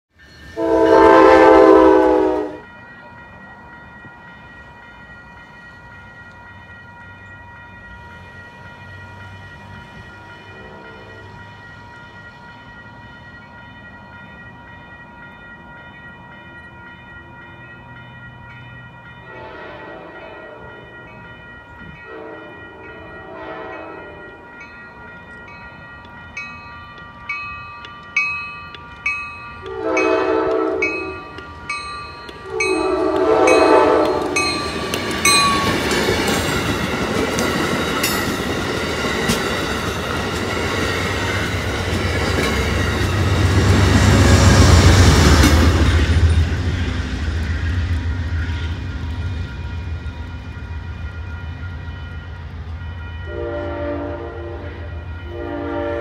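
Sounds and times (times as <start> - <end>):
crossing bell ringing: 0.1 - 56.0
train air horn: 0.5 - 2.7, 10.6 - 11.3, 19.3 - 20.7, 22.0 - 24.2, 29.6 - 31.4, 32.4 - 34.4, 53.3 - 56.0
distant train horn: 0.5 - 2.9, 10.0 - 11.4, 19.2 - 21.0, 21.9 - 24.5, 29.6 - 31.6, 32.3 - 36.1, 53.2 - 56.0.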